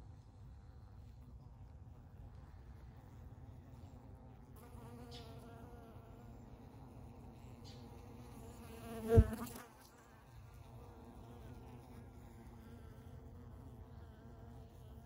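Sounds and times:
honey bees buzzing: 0:03.3 - 0:15.0.

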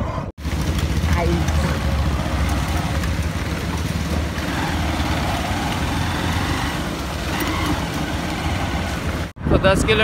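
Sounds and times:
motorcycle engine running: 0:00.4 - 0:09.4
wind noise on microphone: 0:06.5 - 0:10.0.

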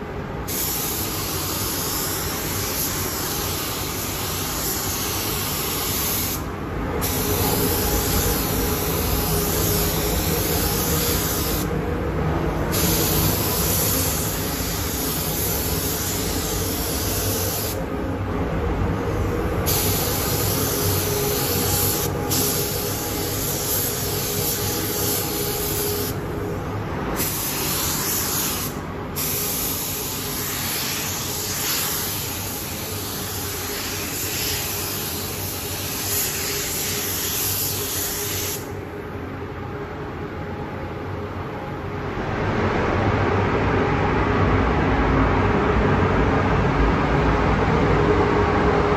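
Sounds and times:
steady low hum: 0:00.0 - 0:48.9
spray gun hissing: 0:00.5 - 0:11.8, 0:12.7 - 0:17.9, 0:19.6 - 0:26.2, 0:27.2 - 0:38.8.

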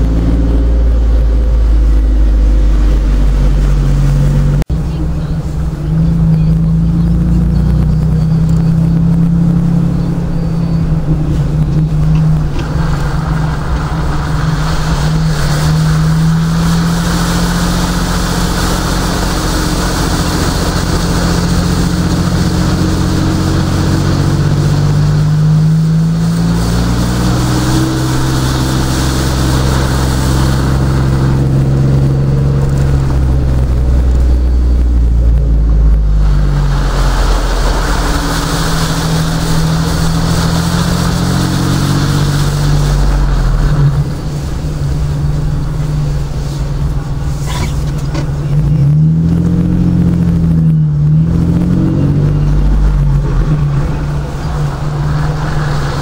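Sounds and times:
car engine running: 0:00.0 - 0:56.0
tyres hissing through water: 0:12.2 - 0:34.4, 0:36.0 - 0:48.1.

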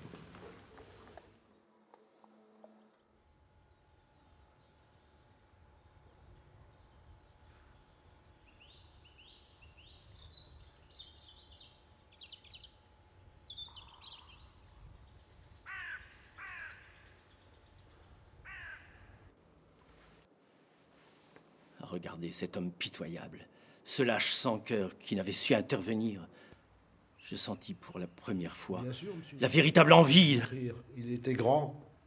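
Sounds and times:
faint birdsong chirps: 0:00.0 - 0:19.4, 0:23.8 - 0:32.0
crow cawing: 0:15.6 - 0:17.2, 0:18.4 - 0:19.2.

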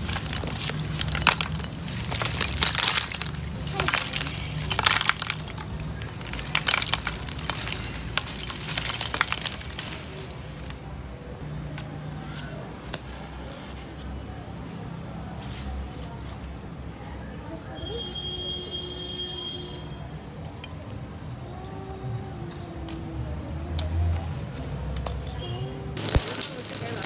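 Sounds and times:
charcoal clattering onto brick: 0:00.0 - 0:10.8, 0:26.0 - 0:27.0.

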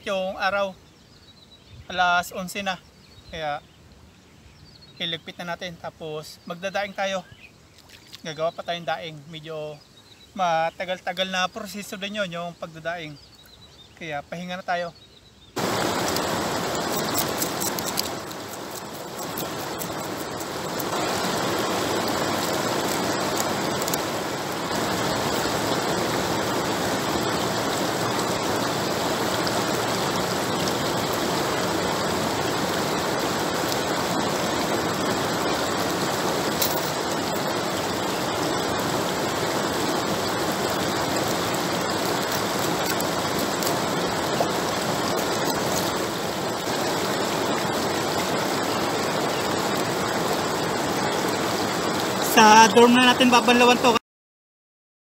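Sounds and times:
river water rushing over weir: 0:15.6 - 0:54.0.

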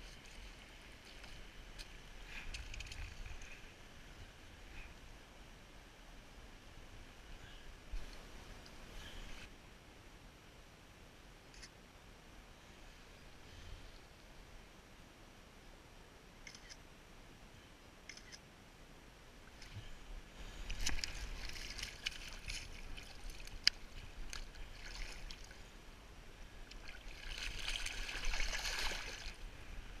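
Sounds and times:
water sloshing and splashing: 0:20.4 - 0:25.6, 0:26.7 - 0:29.4.

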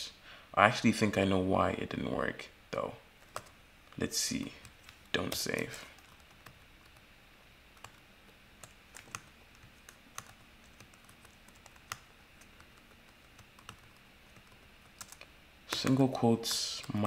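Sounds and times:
faint keystrokes on keyboard: 0:08.6 - 0:16.2.

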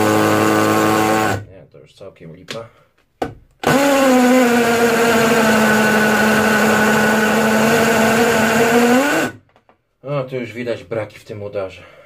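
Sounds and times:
hammer drill grinding into concrete: 0:00.0 - 0:01.4, 0:03.6 - 0:09.4.

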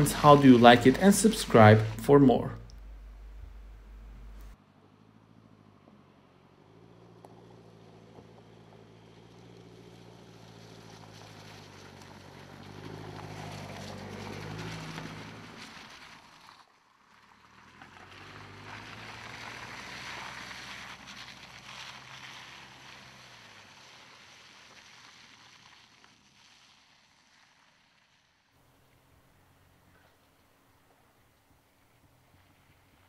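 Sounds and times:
tyres on dirt and leaves: 0:00.0 - 0:04.6, 0:06.7 - 0:33.0
car engine running: 0:00.0 - 0:16.5.

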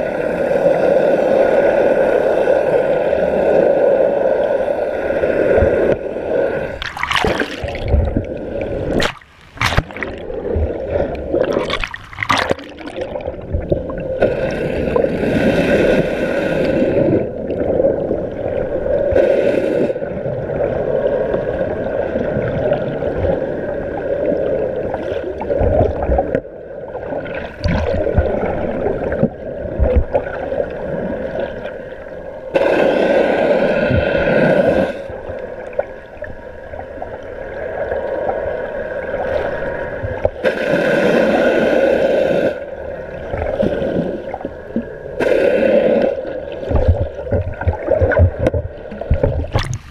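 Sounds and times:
water rushing and gurgling: 0:00.0 - 0:49.9
water splashing: 0:06.7 - 0:19.2, 0:20.4 - 0:31.8, 0:43.2 - 0:49.9.

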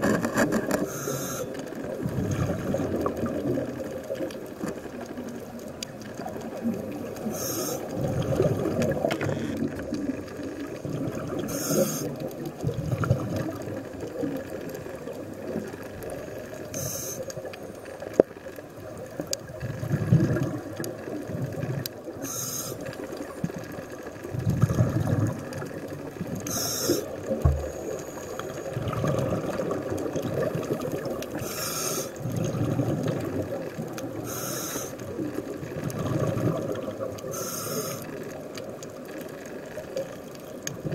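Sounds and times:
exhaled air bubbling: 0:00.0 - 0:40.9
regulator inhalation hiss: 0:00.9 - 0:01.6, 0:07.2 - 0:07.9, 0:11.4 - 0:12.2, 0:16.7 - 0:17.3, 0:22.2 - 0:22.9, 0:26.5 - 0:28.6, 0:31.4 - 0:32.2, 0:34.2 - 0:35.0, 0:37.3 - 0:38.1.

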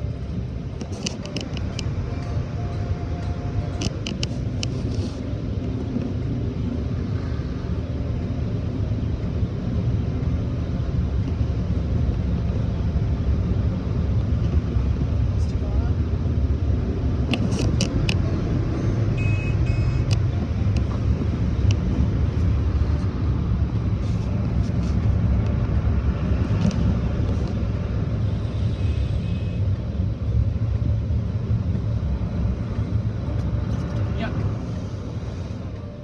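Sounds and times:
muffled car wash machinery rumble: 0:00.0 - 0:36.0
sharp clicks and knocks: 0:00.8 - 0:02.0, 0:17.2 - 0:18.3.

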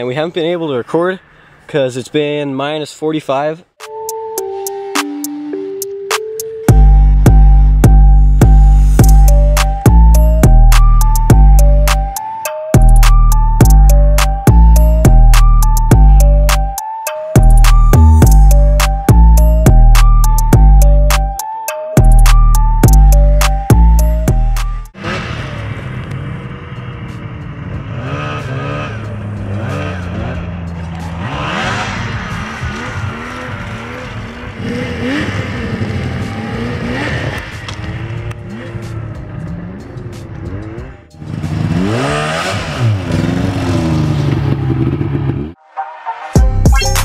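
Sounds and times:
snowmobile engine revving: 0:25.0 - 0:45.6.

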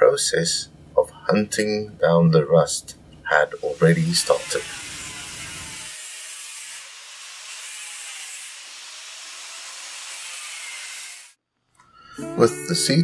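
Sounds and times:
sanding on metal: 0:04.0 - 0:11.3.

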